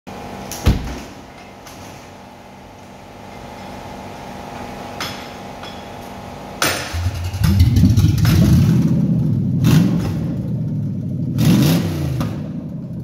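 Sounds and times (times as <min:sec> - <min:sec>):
knocks and clicks: 0:06.7 - 0:08.7
low hum: 0:06.9 - 0:11.5.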